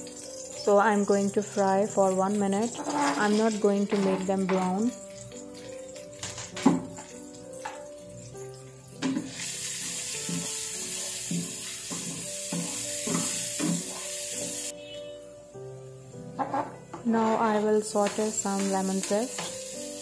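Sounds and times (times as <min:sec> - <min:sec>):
garlic sizzling in a frying pan: 0:00.0 - 0:20.0
wooden spatula knocking on pan: 0:11.2 - 0:14.0.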